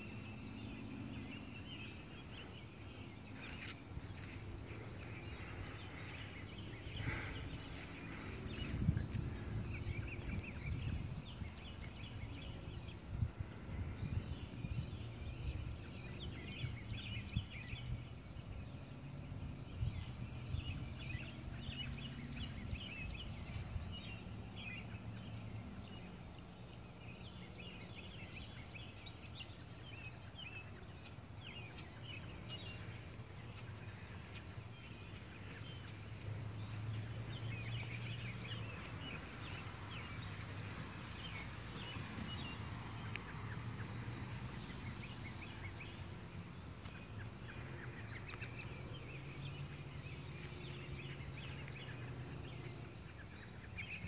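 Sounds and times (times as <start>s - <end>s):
birds chirping: 0.0s - 54.0s
steady low hum: 0.0s - 54.0s.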